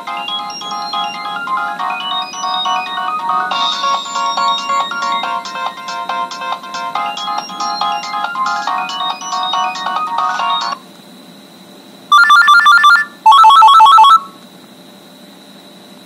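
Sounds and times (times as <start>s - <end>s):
rapid electronic beeps: 0.0s - 6.0s, 6.9s - 10.8s
midi ringtone melody: 0.0s - 10.8s, 12.1s - 14.3s.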